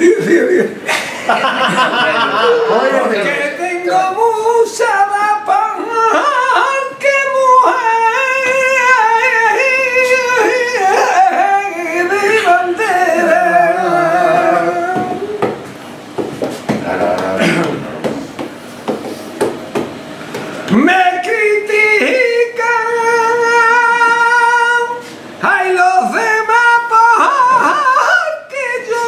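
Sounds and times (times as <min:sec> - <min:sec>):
man singing flamenco: 0:03.3 - 0:15.6, 0:20.7 - 0:29.0
sharp knocks: 0:14.9 - 0:20.5.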